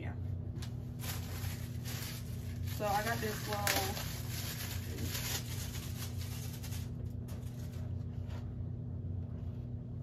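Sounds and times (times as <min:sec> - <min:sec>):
steady low hum: 0:00.0 - 0:10.0
packaging rustling and crinkling: 0:00.6 - 0:08.4.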